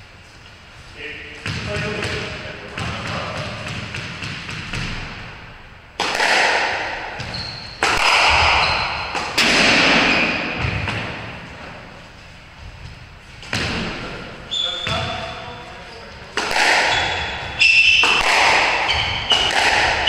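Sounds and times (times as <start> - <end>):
squash ball hits: 1.4 - 5.4, 6.0 - 11.4, 13.4 - 14.2, 16.3 - 20.0
shoe squeak on wooden floor: 7.2 - 7.8, 8.4 - 9.1, 14.4 - 16.2, 16.9 - 19.6.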